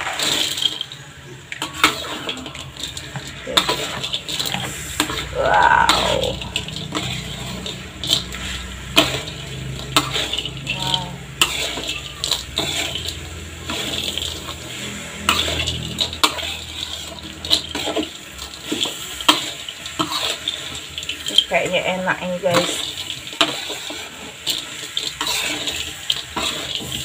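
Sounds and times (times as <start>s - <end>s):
syrup bubbling: 0.0s - 21.3s
spatula scraping a wok: 0.0s - 27.0s.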